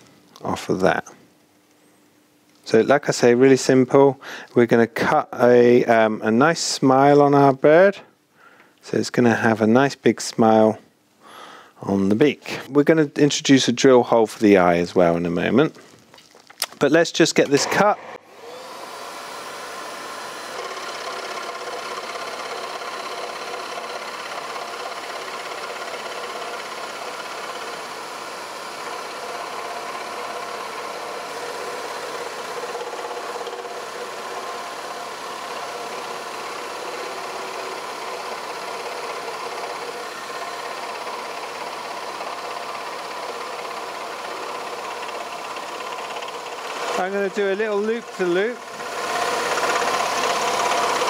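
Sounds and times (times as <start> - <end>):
scroll saw cutting wood: 17.4 - 51.0.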